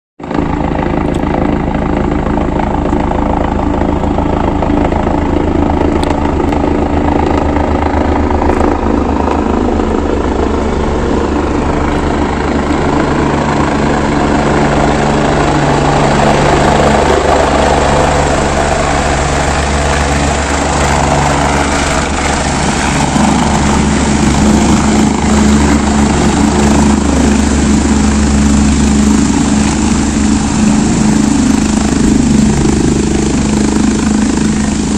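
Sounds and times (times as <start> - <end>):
helicopter rotors and engine: 0.2 - 34.9.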